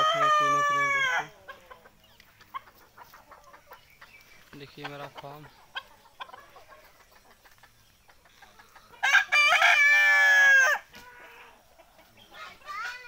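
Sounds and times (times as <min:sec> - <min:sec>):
rooster crowing: 0:00.0 - 0:01.3, 0:09.0 - 0:11.5.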